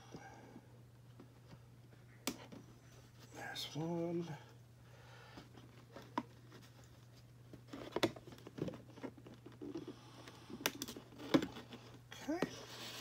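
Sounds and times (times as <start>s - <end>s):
rustling of card and plastic: 5.4s - 13.0s.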